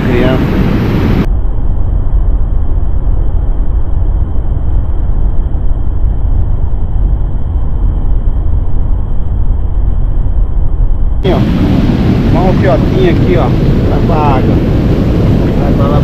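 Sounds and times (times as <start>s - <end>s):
loud muffled low rumble: 0.0s - 16.0s.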